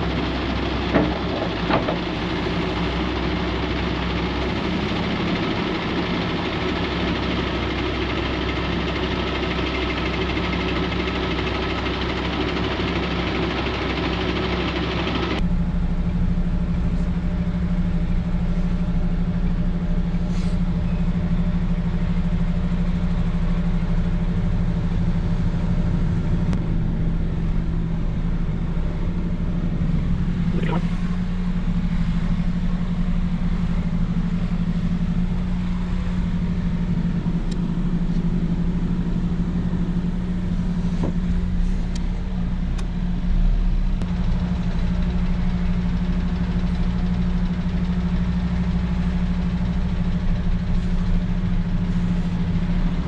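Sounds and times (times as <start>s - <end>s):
heavy truck engine running: 0.0s - 53.0s
road or air noise hiss: 20.0s - 20.9s, 27.1s - 42.6s, 50.5s - 53.0s.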